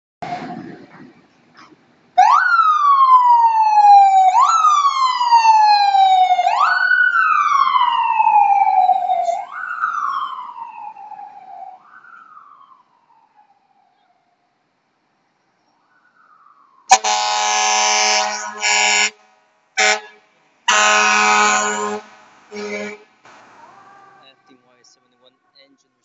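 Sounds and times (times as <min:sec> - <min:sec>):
ambulance siren wailing: 0:02.2 - 0:14.5, 0:15.8 - 0:19.1, 0:20.7 - 0:25.8.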